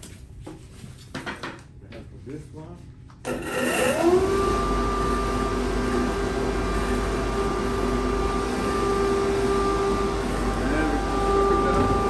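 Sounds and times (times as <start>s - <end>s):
dust extractor motor whine: 3.3s - 12.0s.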